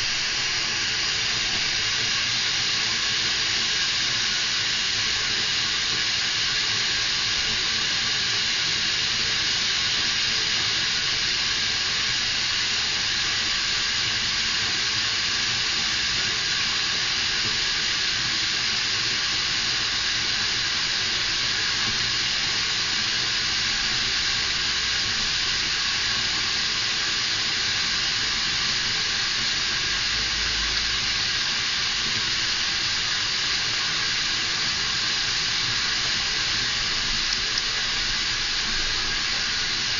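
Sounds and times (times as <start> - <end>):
steady hiss: 0.0 - 8.1, 18.6 - 39.9.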